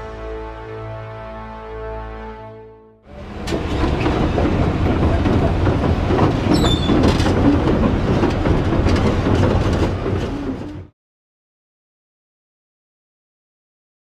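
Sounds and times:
metallic track clanking: 3.1s - 10.9s
falling squeal: 6.5s - 7.0s.

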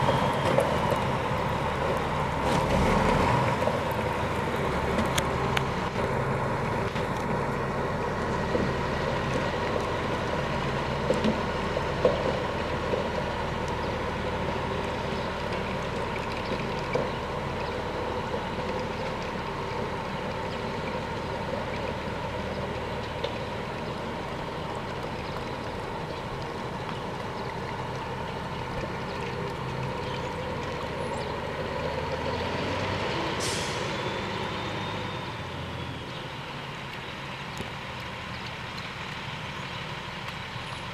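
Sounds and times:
diesel truck engine running: 0.0s - 40.9s.

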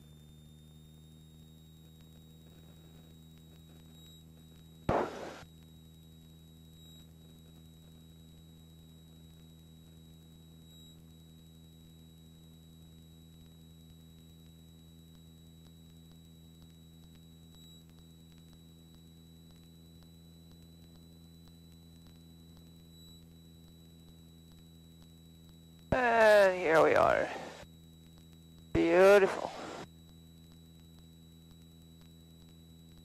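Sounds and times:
faint steady hum: 0.0s - 33.0s
thin high whine: 4.9s - 5.4s, 25.9s - 27.6s, 28.8s - 29.8s.

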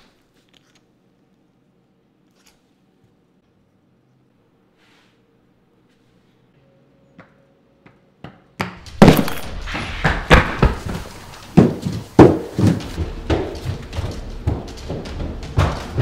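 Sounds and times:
heavy footsteps on wooden stairs: 8.8s - 16.0s.

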